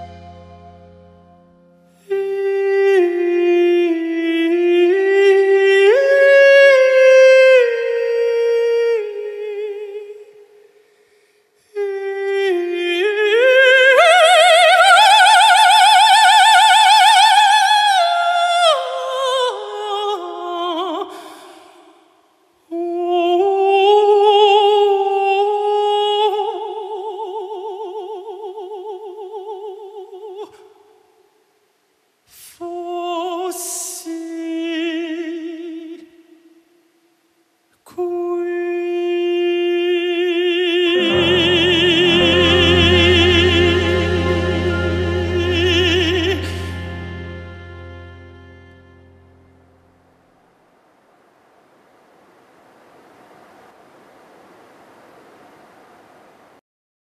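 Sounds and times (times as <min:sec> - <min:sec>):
countertenor singing with vibrato: 0:38.0 - 0:48.7.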